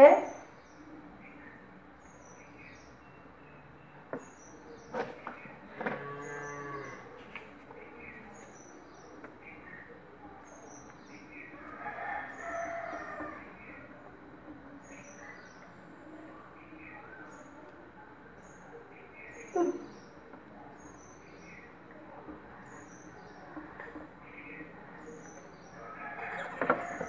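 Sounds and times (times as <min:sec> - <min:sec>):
cow mooing: 0:05.9 - 0:07.1.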